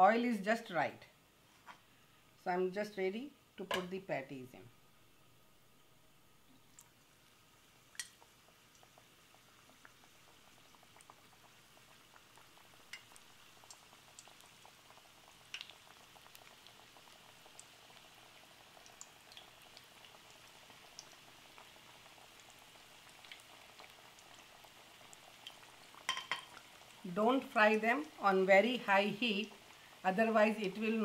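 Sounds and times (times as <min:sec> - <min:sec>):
frying in hot oil: 0:06.4 - 0:31.0.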